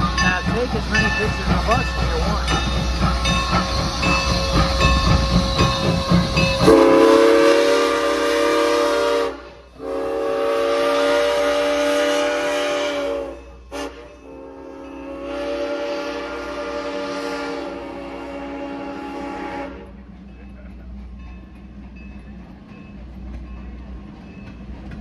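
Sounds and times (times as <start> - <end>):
steam locomotive rumbling: 0.0 - 25.0
chime steam whistle blasts: 1.0 - 19.9.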